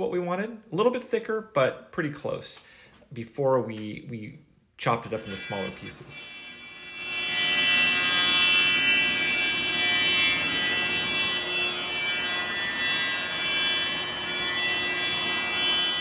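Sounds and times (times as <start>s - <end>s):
thickness planer whine: 4.9s - 16.0s.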